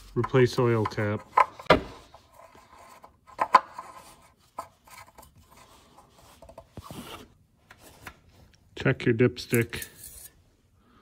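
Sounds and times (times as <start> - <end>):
cap rubbing and scraping: 0.0 - 7.3.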